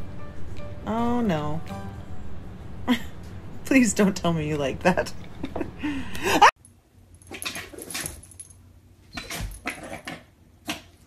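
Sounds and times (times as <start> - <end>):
person's voice: 0.8 - 1.7.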